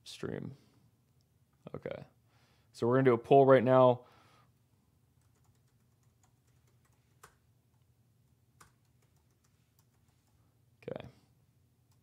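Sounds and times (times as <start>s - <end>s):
computer keyboard typing: 5.2s - 7.4s, 8.6s - 10.4s.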